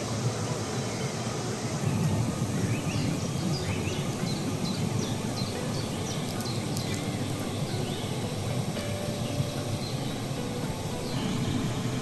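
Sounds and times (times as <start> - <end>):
waterfall rushing: 2.1 - 12.0
bird chirping: 2.6 - 8.2.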